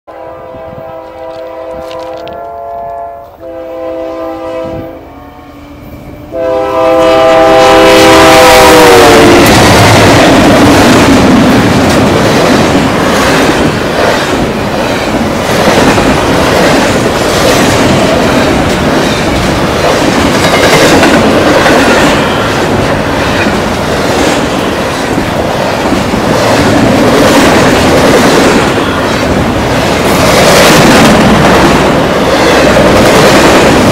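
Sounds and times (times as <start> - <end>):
locomotive air horn blasts: 0.1 - 9.5
train cars rushing and clacking: 5.8 - 33.9.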